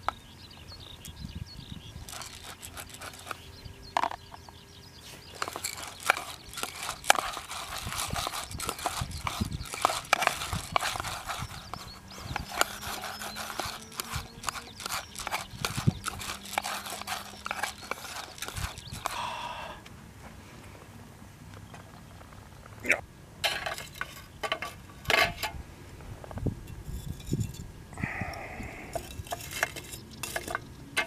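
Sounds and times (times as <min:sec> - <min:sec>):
chopsticks clicking and scraping tin: 0:02.0 - 0:03.4, 0:05.3 - 0:19.2, 0:28.9 - 0:31.0.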